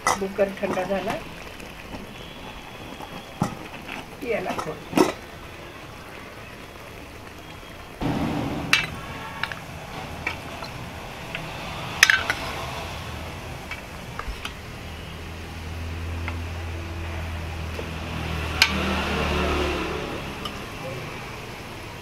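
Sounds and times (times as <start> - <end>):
liquid sloshing: 0.0 - 14.8.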